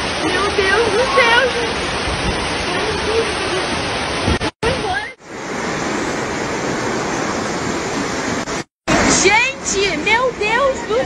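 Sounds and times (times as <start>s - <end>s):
torrential rain: 0.0s - 11.0s.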